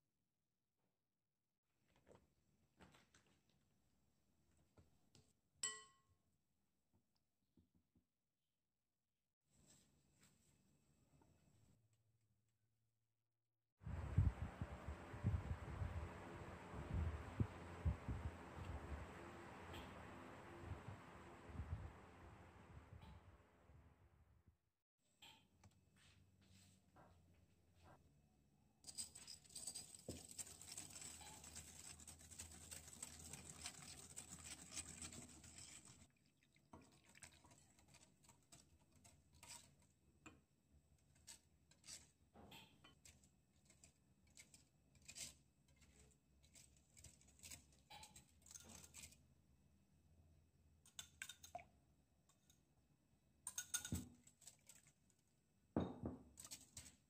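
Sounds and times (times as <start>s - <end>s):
whisk tapping and stirring: 29.0s - 40.4s, 42.8s - 49.2s, 53.5s - 54.9s.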